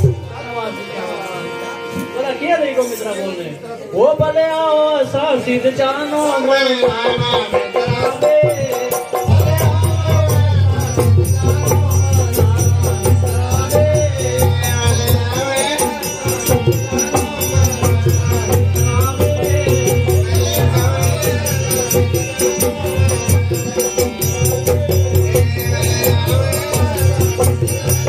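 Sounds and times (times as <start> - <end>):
person singing: 5.2 - 28.0
hand drums: 6.8 - 28.0.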